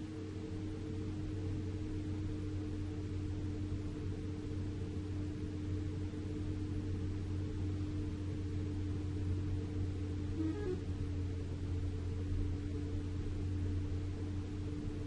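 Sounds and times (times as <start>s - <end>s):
vehicle engine drone: 0.0s - 15.0s
constant tone: 7.2s - 15.0s.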